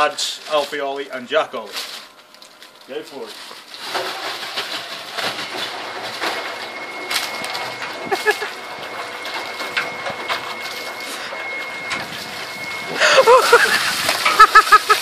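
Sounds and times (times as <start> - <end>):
ice rattling in a mixer drum: 0.1 - 15.0
faint high hum: 10.6 - 15.0.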